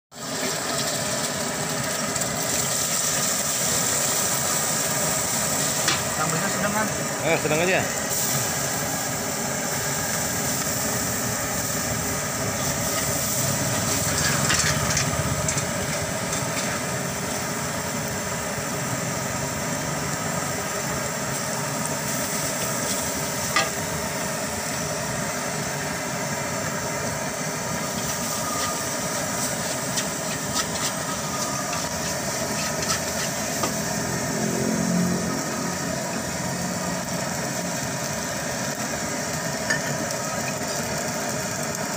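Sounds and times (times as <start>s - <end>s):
rice sizzling in a wok: 0.1s - 41.9s
metal spatula scraping a wok: 12.6s - 15.6s, 27.9s - 33.8s.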